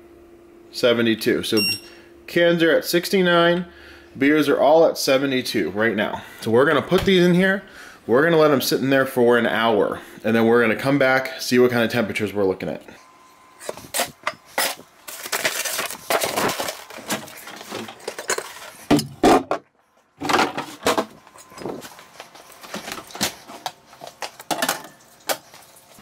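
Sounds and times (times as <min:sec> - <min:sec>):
handling rustles: 0:13.6 - 0:18.9.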